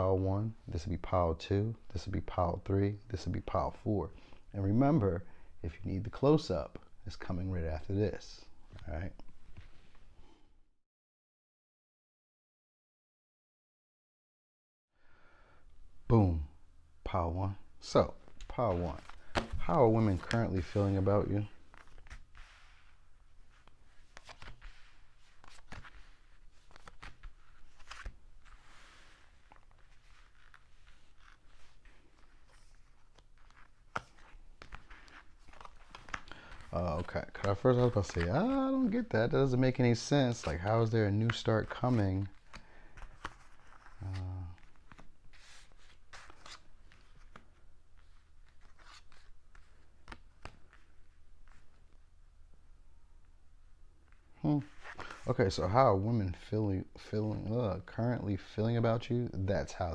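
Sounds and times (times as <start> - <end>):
cards swishing on a tabletop: 8.7 - 10.1, 18.2 - 39.1, 39.8 - 52.0, 54.6 - 55.3
cards slapping on tabletop: 18.3 - 20.4.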